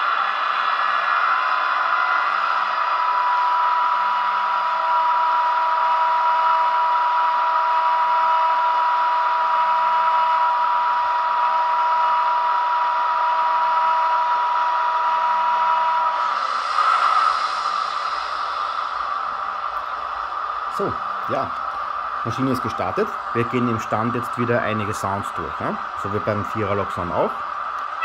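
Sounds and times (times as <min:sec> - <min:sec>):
electrical whine and hum: 0:00.0 - 0:28.0
lower electrical tone: 0:12.9 - 0:28.0.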